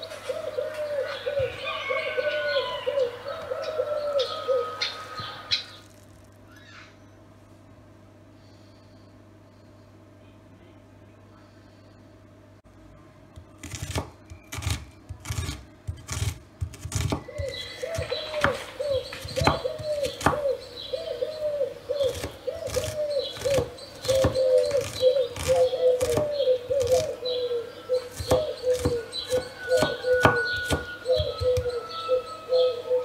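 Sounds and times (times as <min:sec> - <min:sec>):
bird calling: 0:00.0 - 0:05.9, 0:06.5 - 0:07.1, 0:16.9 - 0:33.0
knife chopping on wooden board: 0:13.6 - 0:20.4, 0:22.1 - 0:27.1, 0:28.1 - 0:31.7.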